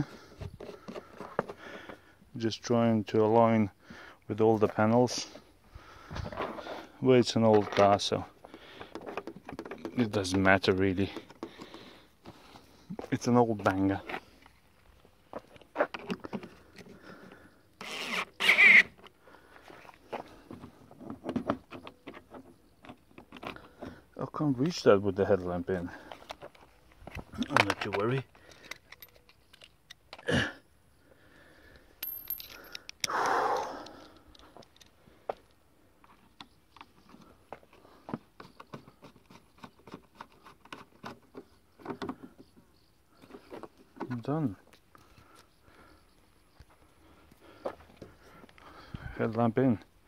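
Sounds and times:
plastic clicks and knocks: 8.8s - 10.5s.

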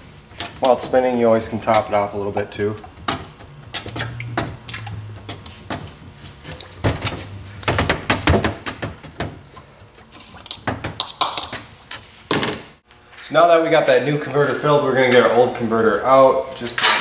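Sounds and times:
low steady hum: 0.0s - 11.9s.

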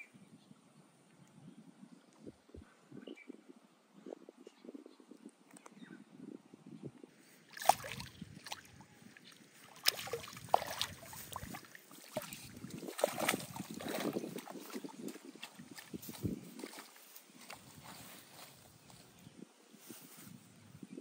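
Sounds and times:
water splashing in a pond: 7.4s - 17.9s.

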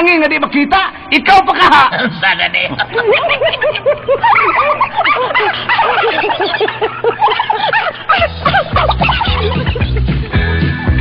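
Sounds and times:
people laughing together: 2.7s - 10.6s
music: 8.2s - 11.0s.

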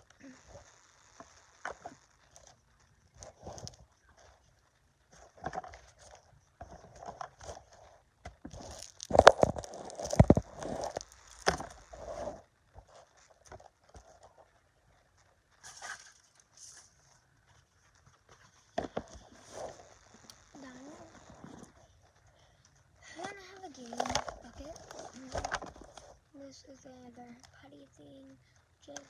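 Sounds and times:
rummaging through small toys: 5.1s - 14.5s, 15.6s - 17.2s, 18.0s - 26.3s.

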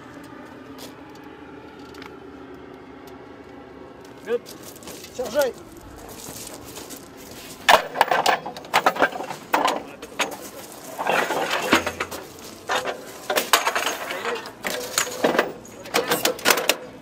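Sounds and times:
metallic clanks and rattles: 4.4s - 17.0s.

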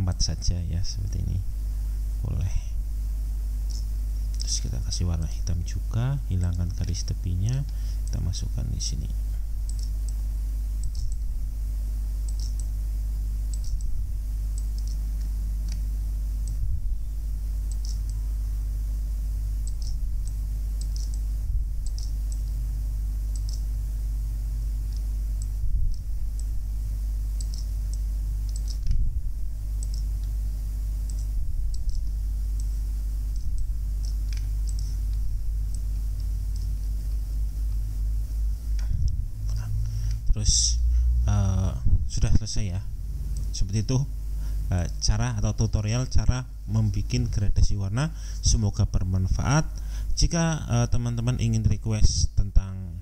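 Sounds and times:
steady low hum: 0.0s - 53.0s
computer mouse clicks: 3.7s - 4.6s, 9.6s - 10.2s, 10.8s - 11.2s, 12.2s - 12.7s, 13.5s - 16.6s, 17.6s - 18.2s, 19.6s - 22.6s, 23.3s - 23.7s, 27.4s - 29.0s, 29.8s - 30.4s, 31.0s - 37.2s.

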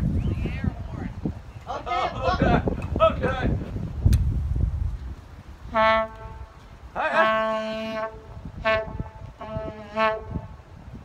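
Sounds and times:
locomotive air horn blasts: 5.6s - 11.0s.

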